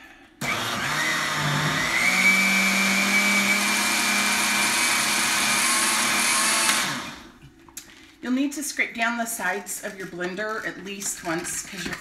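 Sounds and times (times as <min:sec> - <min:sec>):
blender motor whining: 0:00.4 - 0:07.4.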